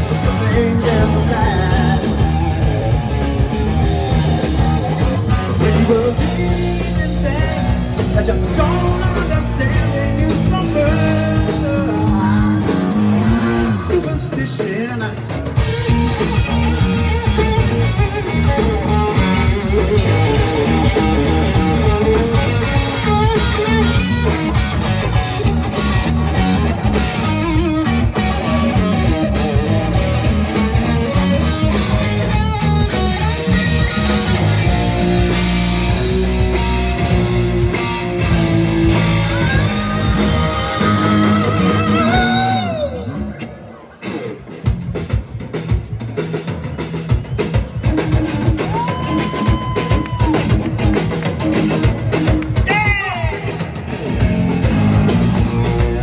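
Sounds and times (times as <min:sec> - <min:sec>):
drum kit: 0:00.0 - 0:43.2, 0:44.0 - 0:56.0
bass guitar: 0:00.0 - 0:56.0
electric guitar: 0:00.0 - 0:56.0.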